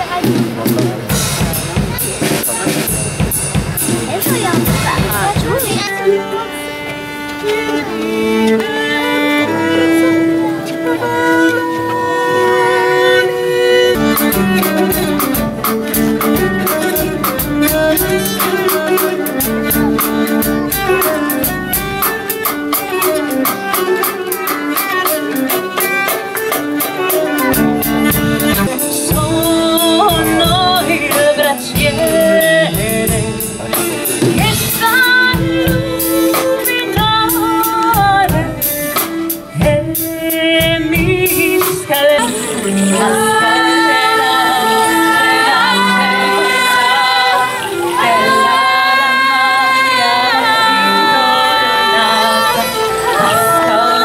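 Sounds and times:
steady drumbeat: 0.0 - 42.8
bowed strings: 4.0 - 39.6
person singing: 27.4 - 39.0, 39.6 - 54.0.

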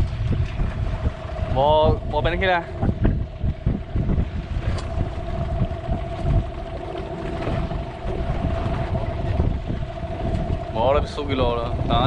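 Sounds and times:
boat engine running: 0.0 - 12.0
wind buffeting microphone: 0.0 - 12.0.

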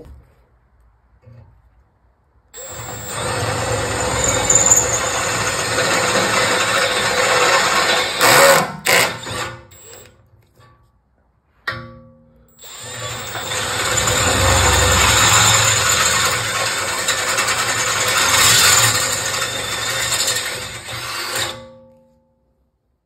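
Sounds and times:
cordless drill drilling metal: 2.6 - 10.1, 12.6 - 21.6.

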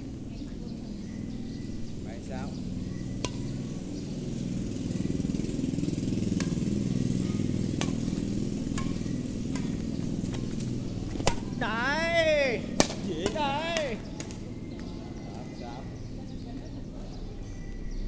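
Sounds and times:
rackets hitting shuttlecock: 3.1 - 14.9.

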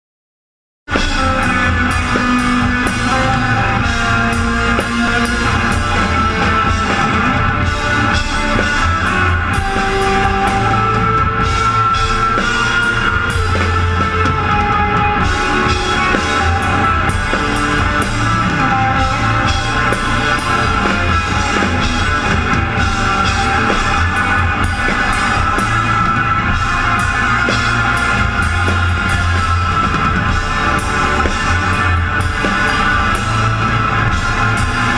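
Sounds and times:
drum kit pounding: 0.9 - 34.9
electric guitars: 0.9 - 34.9
rock band playing live: 0.9 - 34.9.

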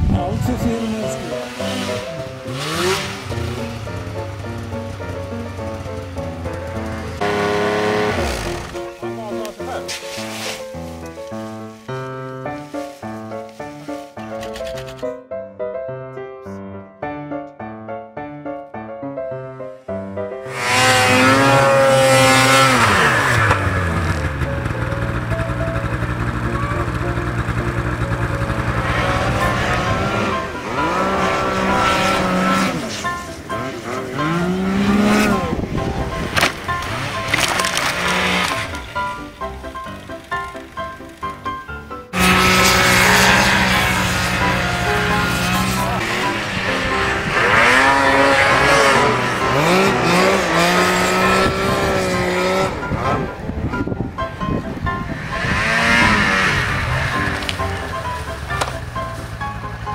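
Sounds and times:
snowmobile engine revving: 0.6 - 9.5, 20.4 - 41.1, 42.1 - 53.4, 55.1 - 59.3.

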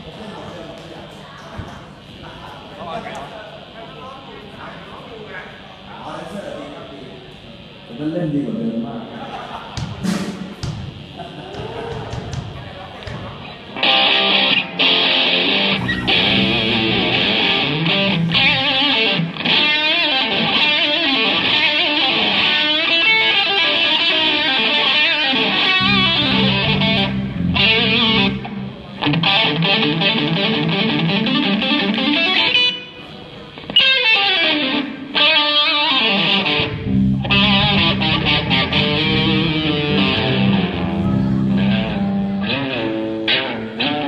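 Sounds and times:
distorted electric guitar riffs: 13.4 - 44.0.

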